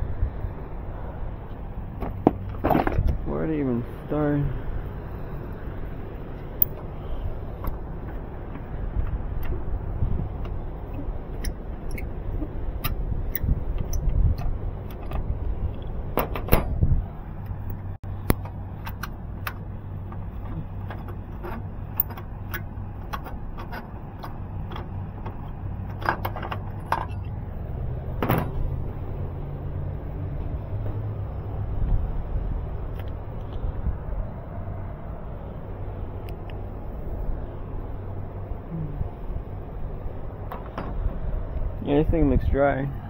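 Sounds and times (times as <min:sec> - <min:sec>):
steady low hum: 0:00.0 - 0:43.0
handling clicks and knocks: 0:17.5 - 0:27.4, 0:40.4 - 0:41.1
metal panel clattering open: 0:28.2 - 0:28.7.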